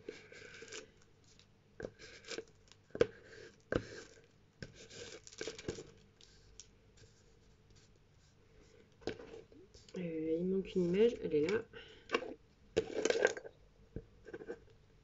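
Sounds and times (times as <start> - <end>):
paper rustling and scraping: 0.0 - 10.0.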